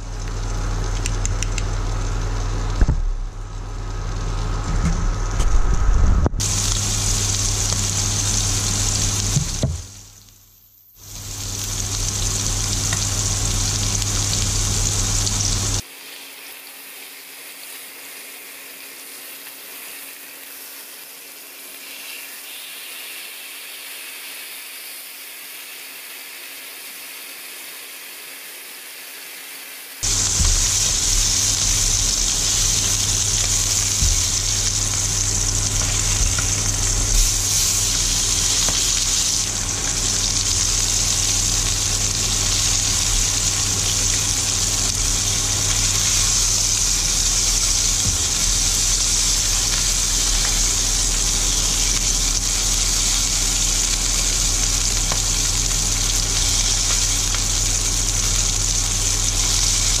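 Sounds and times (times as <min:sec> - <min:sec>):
steaks sizzling in a pan: 0:06.4 - 1:00.0
steady low hum: 0:30.0 - 0:56.6.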